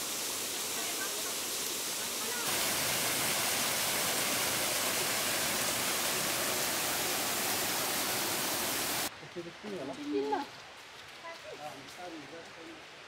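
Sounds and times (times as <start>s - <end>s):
waterfall rushing over rocks: 0.0s - 9.1s.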